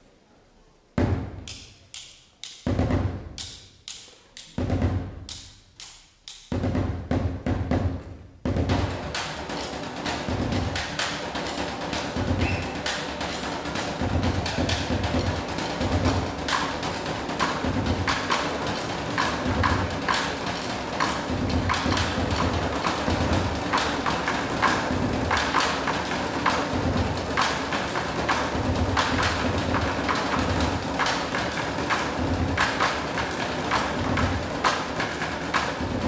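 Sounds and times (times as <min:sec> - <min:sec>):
quick sharp percussion strikes: 0:01.0 - 0:36.0.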